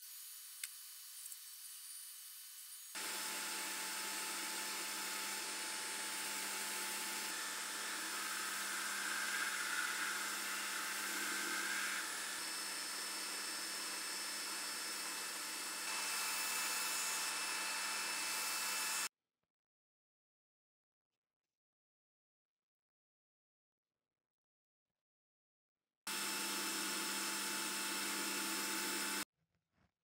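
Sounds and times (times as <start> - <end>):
belt sander sanding wood: 2.6 - 19.0, 26.1 - 29.2.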